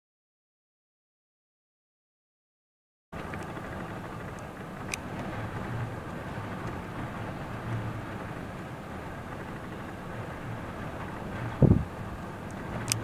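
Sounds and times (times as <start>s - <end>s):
wind buffeting microphone: 3.2s - 13.0s.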